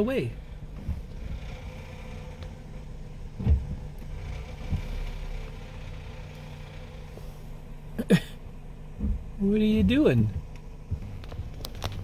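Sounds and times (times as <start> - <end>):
car engine idling: 0.0 - 12.0
short low thump: 3.3 - 4.0, 9.0 - 11.6.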